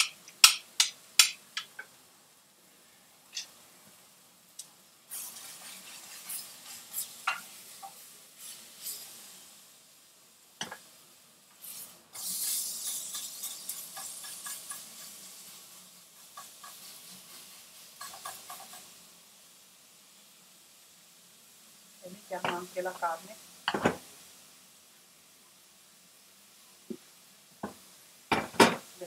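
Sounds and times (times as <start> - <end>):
peppers sizzling in frying pan: 0.0 - 29.0
spatula knocking and scraping pan: 5.4 - 8.0, 18.0 - 18.9, 23.7 - 24.0, 27.6 - 28.9.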